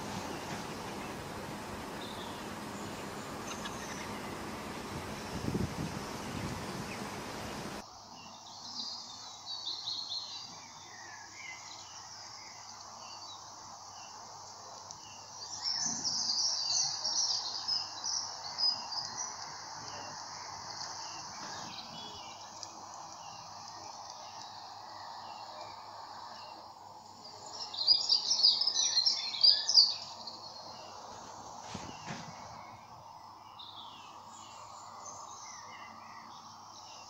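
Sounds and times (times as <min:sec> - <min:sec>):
steady rushing noise: 0:00.0 - 0:07.8
small birds chirping: 0:00.0 - 0:37.0.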